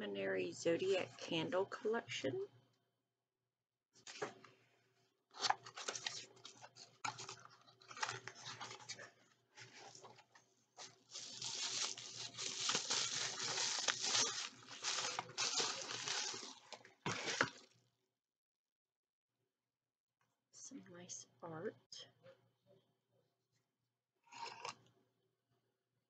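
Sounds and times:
cardboard and paper rustling: 5.4 - 17.6.

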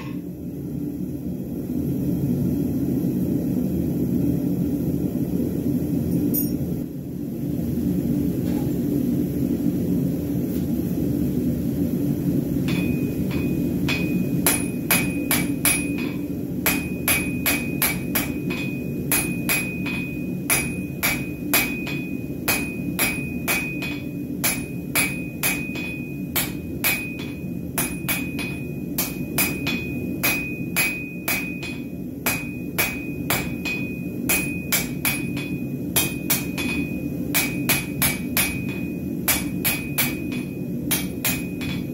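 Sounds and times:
hammer striking hot bar on anvil: 12.6 - 41.9.

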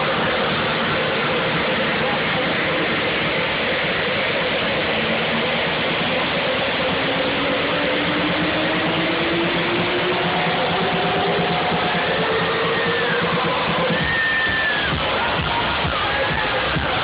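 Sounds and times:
loud electronic dance music: 0.0 - 17.0
synth tone rising in pitch: 7.0 - 15.0.

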